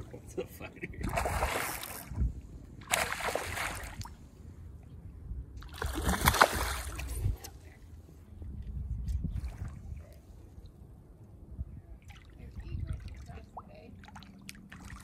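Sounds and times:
fish splashing in water: 2.8 - 4.1, 5.6 - 7.1.

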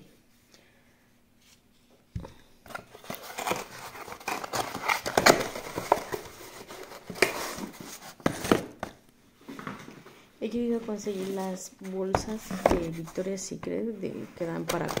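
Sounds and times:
cardboard box rustling and scraping: 2.7 - 8.7, 10.9 - 13.4.

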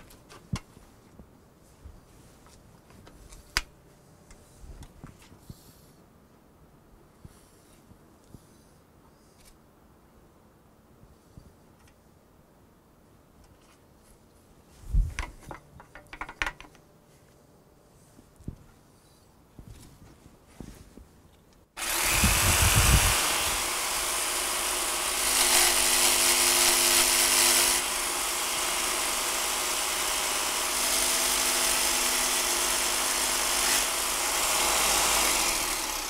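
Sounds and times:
power tool cutting wood: 21.8 - 36.0.

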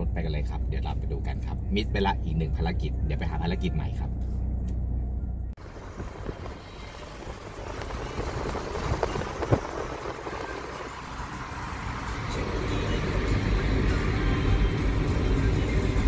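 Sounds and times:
tyre and wind noise inside car: 4.2 - 16.0.

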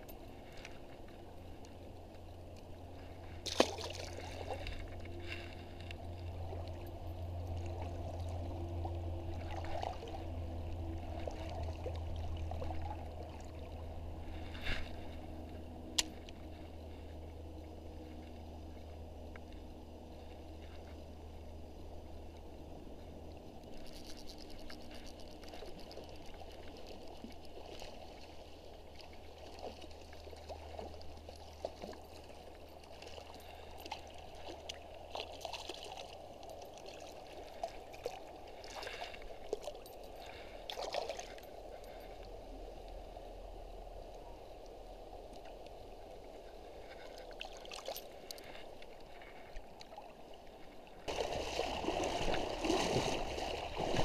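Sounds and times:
stream water trickling: 0.0 - 54.0
fish splashing in water: 3.4 - 4.6, 51.1 - 54.0.

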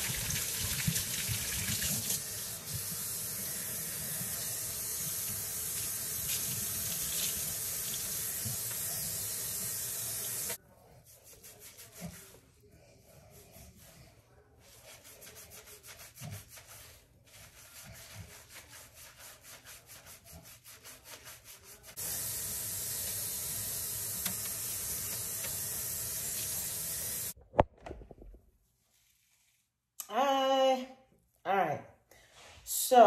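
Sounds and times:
faucet running: 0.0 - 10.6, 22.0 - 27.4
hands scrubbing wet hair: 3.9 - 12.6, 14.6 - 27.4.

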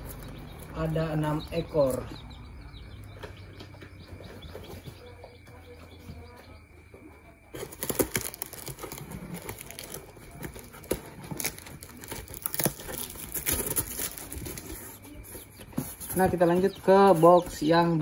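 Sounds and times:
cardboard flaps crackling: 7.6 - 17.6
packing tape ripping off: 7.7 - 14.8.

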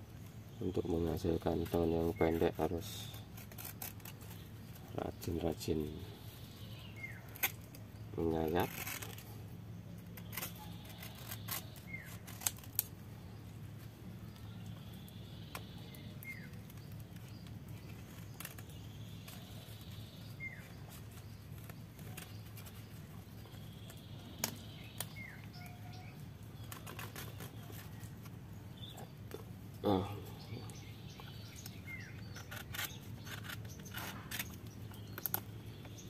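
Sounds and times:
blade clicking and scraping: 1.5 - 5.7, 7.0 - 9.4, 10.0 - 12.9, 30.8 - 36.0.

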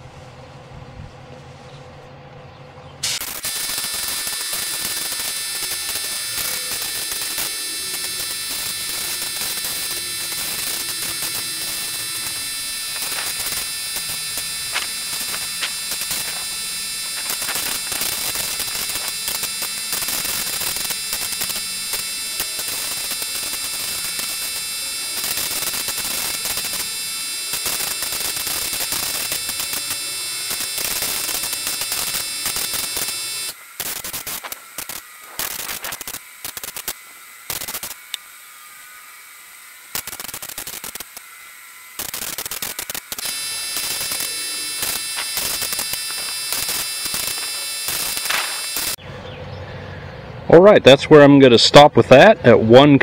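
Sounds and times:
spray gun air hissing: 3.0 - 22.0.

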